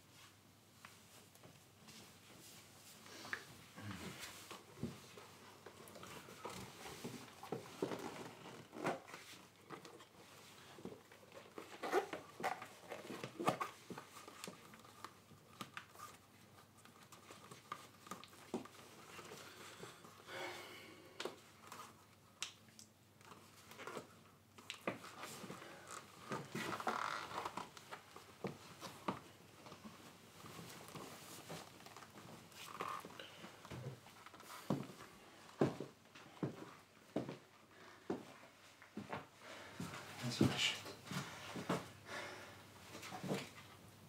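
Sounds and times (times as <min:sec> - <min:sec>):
clothing rustling: 0:23.3 - 0:42.0.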